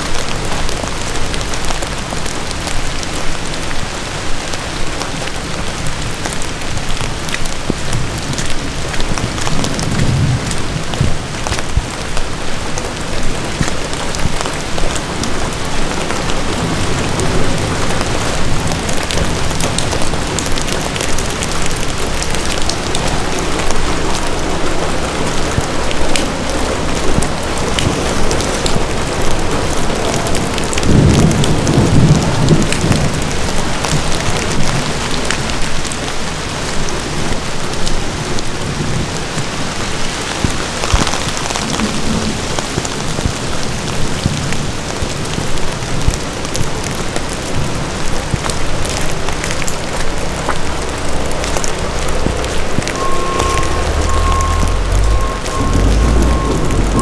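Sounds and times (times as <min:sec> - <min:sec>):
rain on umbrella and leaves: 0:00.0 - 0:57.0
distant thunder rumble: 0:51.6 - 0:57.0.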